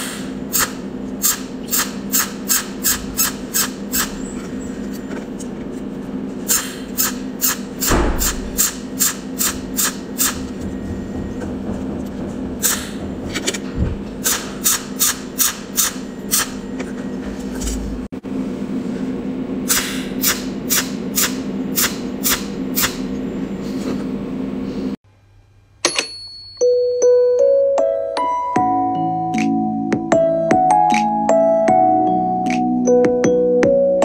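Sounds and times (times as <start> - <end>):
spot welder snapping pulses: 0.0 - 4.2, 6.5 - 10.6, 14.2 - 16.6, 19.7 - 23.1
steady machine hum: 0.0 - 25.8
piano music: 26.6 - 34.0.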